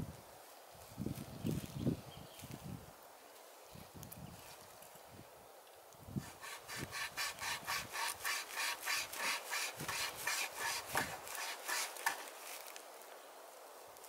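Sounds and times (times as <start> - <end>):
pocket saw cutting wood: 6.2 - 12.5.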